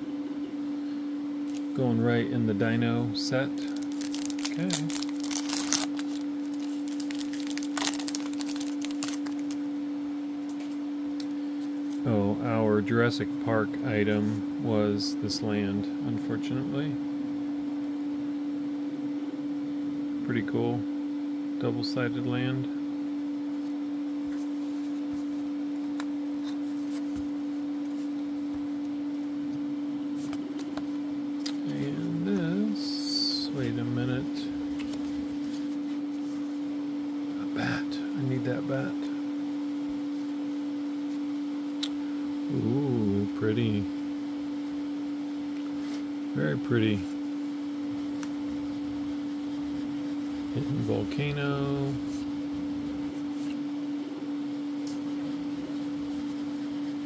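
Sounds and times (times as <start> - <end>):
steady low hum: 0.0 - 57.0
trading cards being handled: 1.5 - 1.8, 3.5 - 9.6, 23.6 - 28.9, 34.2 - 36.5
plastic wrapper tearing and crinkling: 3.6 - 9.6.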